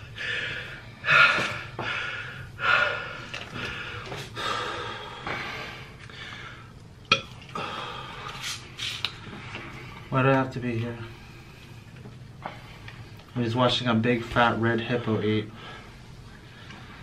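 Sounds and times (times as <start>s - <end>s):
man breathing hard: 0.0s - 6.8s, 7.5s - 10.1s, 15.5s - 17.0s.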